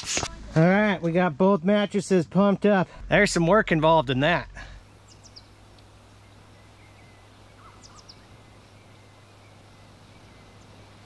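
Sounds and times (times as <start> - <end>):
faint low hum: 2.9 - 11.0
high falling bird chirps: 4.8 - 11.0.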